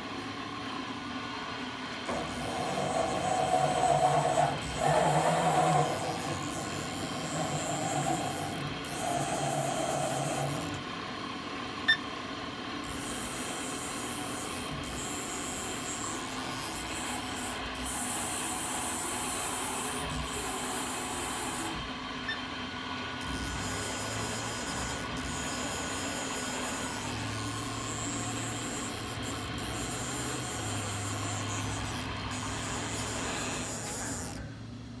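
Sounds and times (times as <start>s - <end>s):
machine hum: 0.0s - 10.9s.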